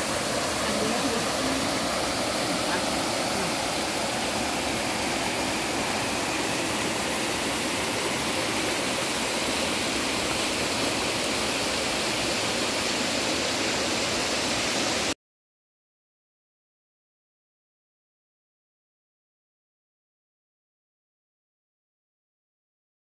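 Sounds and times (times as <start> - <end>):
stream water rushing: 0.0 - 15.2.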